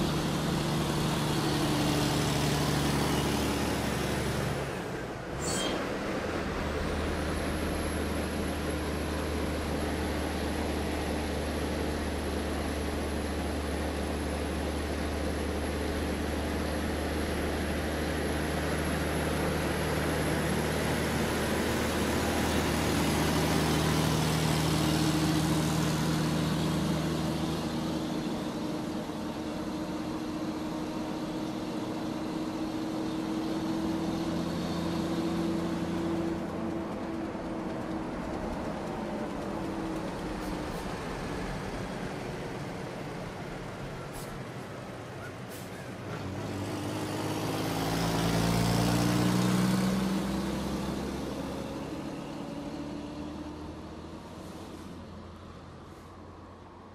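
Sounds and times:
low engine-like drone: 0.0s - 46.6s.

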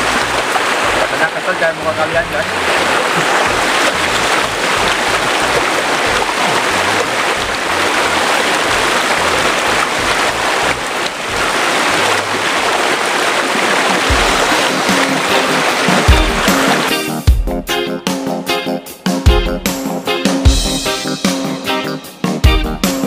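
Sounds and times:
river rushing over rocks: 0.0s - 16.9s.

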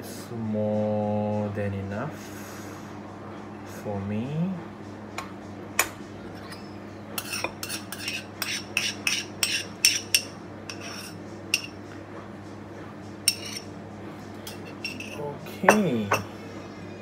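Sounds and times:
spoon scraping ceramic bowl: 6.4s - 11.8s, 13.3s - 13.7s, 14.5s - 15.8s.

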